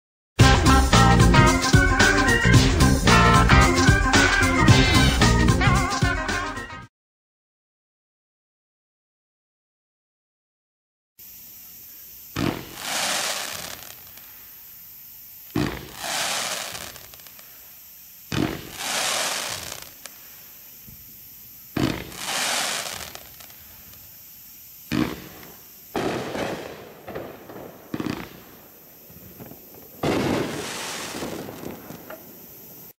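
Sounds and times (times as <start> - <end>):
fireworks shots with hissing: 11.2 - 32.9.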